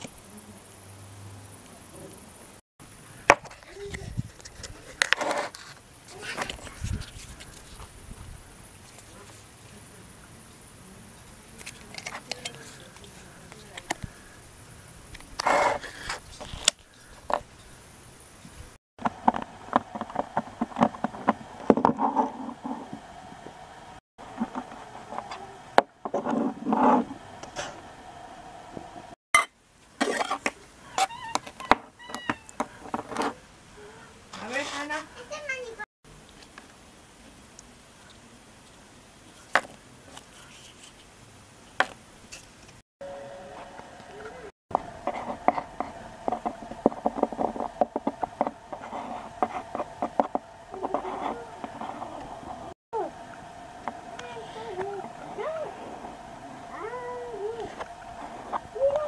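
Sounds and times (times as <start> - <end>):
knife scraping particleboard: 4.8 - 7.2, 15.4 - 16.6
faint steady hum: 43.0 - 59.0.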